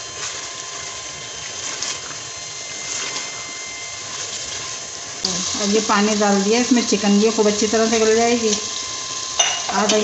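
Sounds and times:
food sizzling in a metal pot: 0.0 - 10.0
spatula scraping a pot: 1.4 - 6.2.

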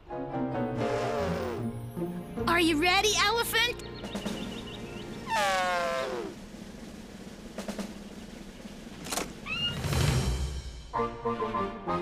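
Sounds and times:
cartoon elephant trumpet call: 0.8 - 1.7, 5.3 - 6.4
short rising squeak: 9.4 - 10.0.

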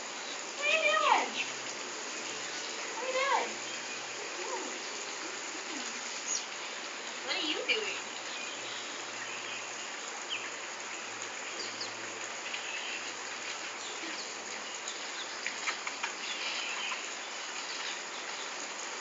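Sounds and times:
background hiss: 0.0 - 19.0.

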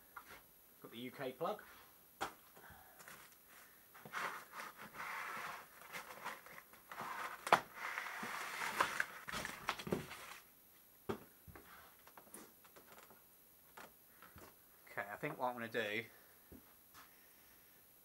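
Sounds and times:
plastic wrap crinkling: 4.1 - 10.5.

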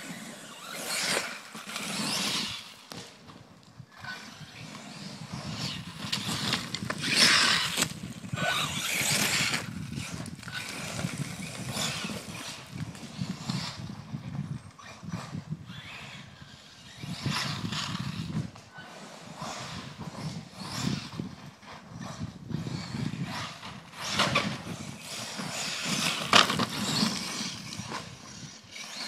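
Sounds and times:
rc truck motor surging: 4.0 - 12.8, 22.6 - 29.0.

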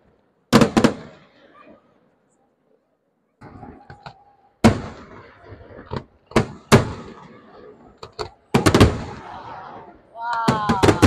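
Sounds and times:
fireworks bangs with echo: 0.5 - 1.3, 4.6 - 11.0
fireworks cracking: 0.5 - 1.3, 3.4 - 11.0.

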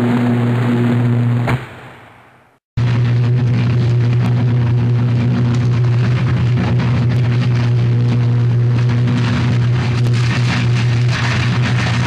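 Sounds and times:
electrical arc buzzing and crackling: 2.8 - 12.0.

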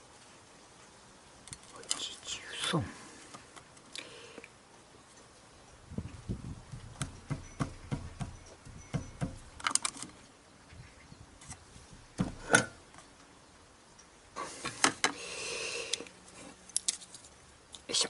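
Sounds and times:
metal tools knocking on table: 7.1 - 9.6.

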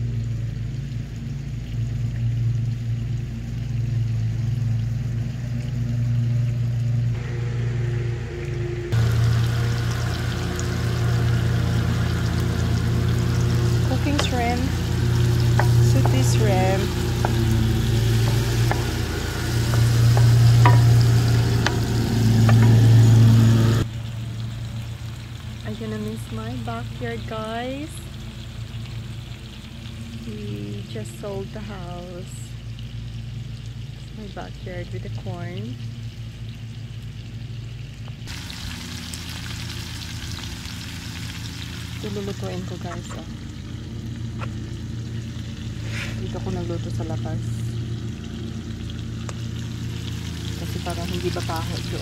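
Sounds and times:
engine humming steadily: 0.0 - 52.0
vegetables sizzling in a skillet: 8.9 - 52.0
wooden spoon tapping a pan: 14.0 - 23.2.

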